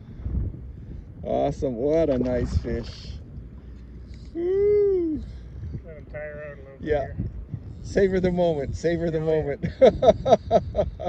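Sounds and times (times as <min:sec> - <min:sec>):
wind rumble on microphone: 0:00.0 - 0:11.0
man whooping: 0:04.3 - 0:05.4.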